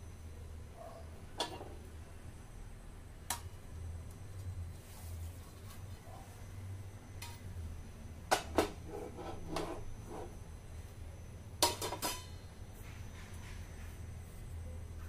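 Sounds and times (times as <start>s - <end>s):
utensils clinking on dishes: 11.6s - 12.3s.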